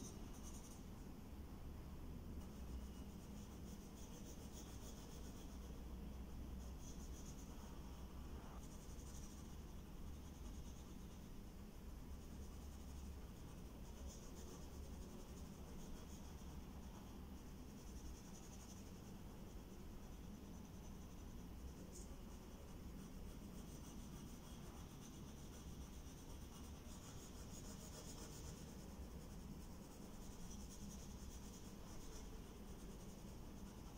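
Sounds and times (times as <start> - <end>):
low steady hum: 0.0 - 33.9
pencil scratching on paper: 2.4 - 5.8, 12.2 - 33.9.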